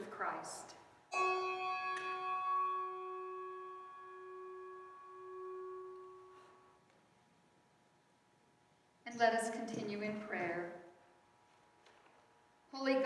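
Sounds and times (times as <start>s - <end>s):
bell ringing: 1.1s - 6.7s.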